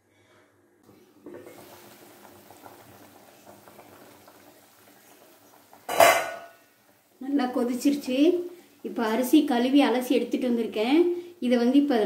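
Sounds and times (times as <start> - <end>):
water bubbling at a boil: 1.2 - 10.4.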